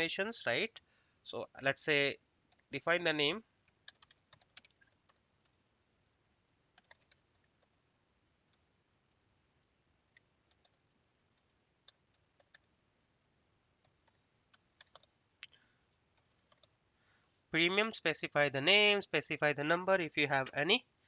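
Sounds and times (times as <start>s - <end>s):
computer keyboard typing: 3.6s - 5.6s, 6.7s - 7.8s, 10.1s - 10.8s, 11.4s - 12.7s, 13.8s - 15.2s, 16.1s - 16.8s.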